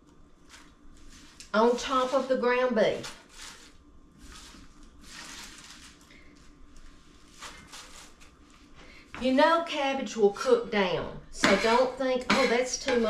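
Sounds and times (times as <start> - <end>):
chopped cabbage rustling: 0.4 - 8.7.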